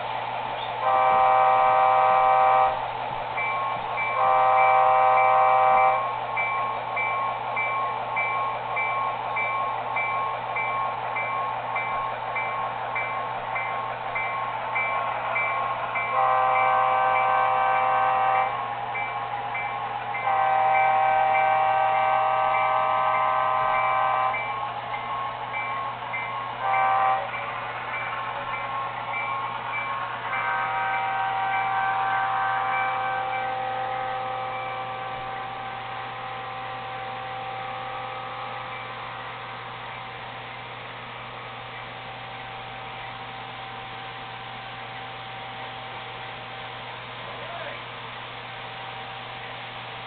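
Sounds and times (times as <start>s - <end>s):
model train air horn: 0.8s - 2.8s, 4.0s - 6.2s, 16.0s - 18.8s, 20.1s - 24.6s, 26.6s - 27.5s, 29.8s - 38.8s.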